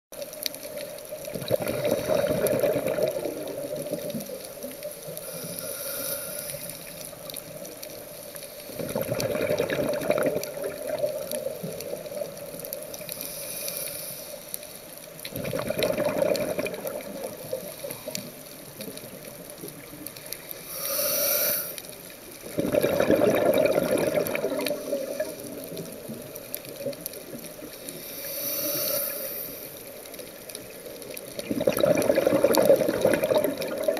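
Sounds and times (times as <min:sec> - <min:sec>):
exhaled bubbles rushing: 0:01.3 - 0:04.5, 0:08.8 - 0:12.6, 0:15.3 - 0:17.9, 0:22.4 - 0:27.5, 0:31.0 - 0:33.9
regulator inhalation hiss: 0:05.0 - 0:07.1, 0:13.1 - 0:14.8, 0:20.6 - 0:22.0, 0:27.8 - 0:30.0.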